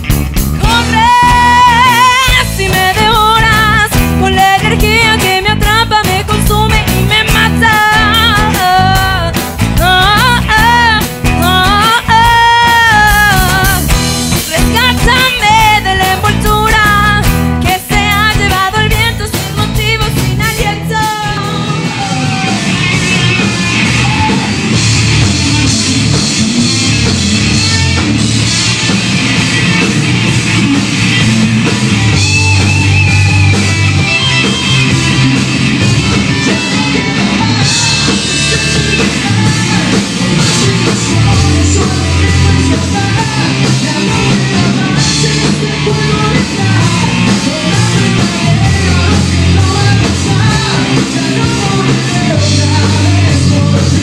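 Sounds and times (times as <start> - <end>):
live rock band playing: 0.0 - 54.0
person singing: 0.6 - 25.0, 36.0 - 54.0.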